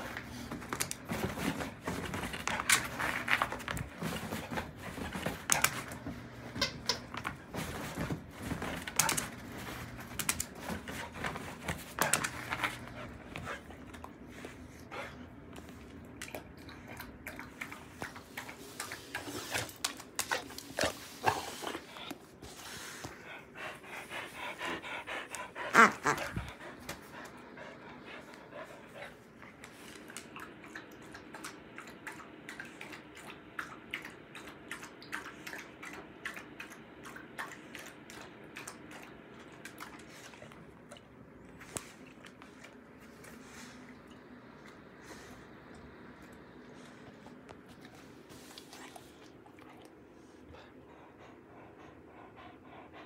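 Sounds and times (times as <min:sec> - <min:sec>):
dog panting: 0:07.5 - 0:15.9, 0:17.5 - 0:30.3, 0:45.0 - 0:53.0.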